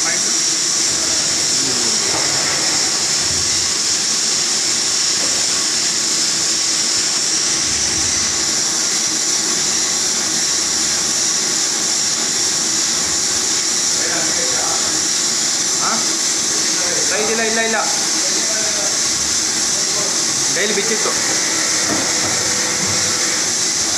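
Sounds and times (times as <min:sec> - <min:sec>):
faint machine hum: 0:00.0 - 0:23.9
machine high-pitched hiss: 0:00.0 - 0:23.9.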